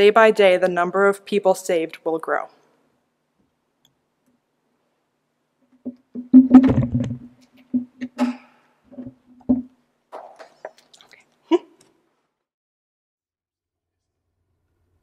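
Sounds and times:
knocks on wooden pulpit: 5.9 - 7.9, 9.0 - 9.7.

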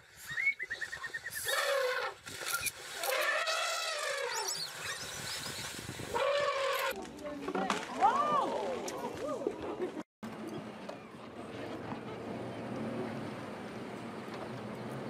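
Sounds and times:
high-pitched animal calls: 0.8 - 5.2.

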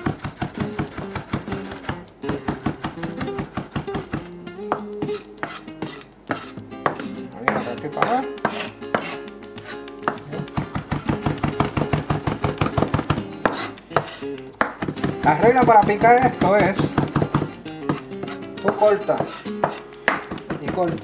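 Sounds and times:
knife chopping on wooden board: 0.0 - 21.0.

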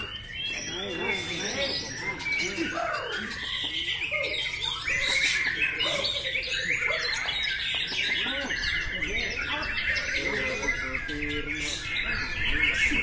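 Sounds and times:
caged birds singing: 0.0 - 13.0.

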